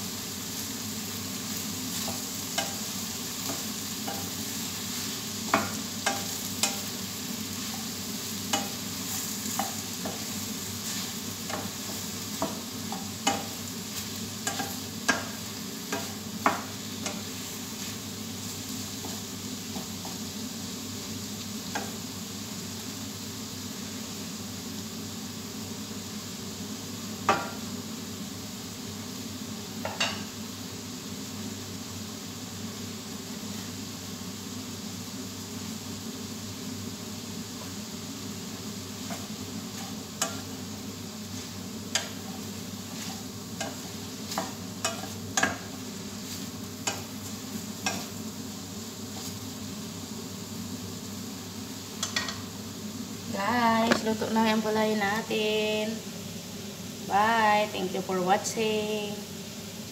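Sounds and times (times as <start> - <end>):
food sizzling in a pan: 0.0 - 59.9
spatula knocking against pan: 27.3 - 27.6.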